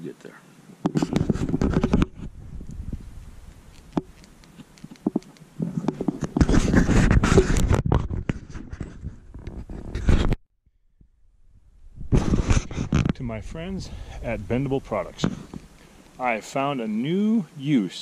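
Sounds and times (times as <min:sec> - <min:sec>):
camera handling clicks and knocks: 0:03.5 - 0:06.6.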